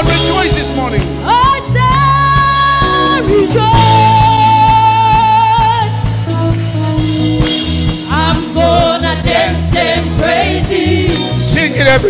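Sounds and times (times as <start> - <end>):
live gospel band playing: 0.0 - 12.0
people singing: 8.0 - 12.0.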